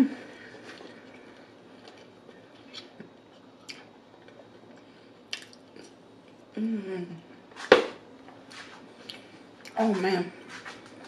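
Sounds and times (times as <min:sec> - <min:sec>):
soft chewing: 0:00.3 - 0:06.5, 0:08.3 - 0:09.8.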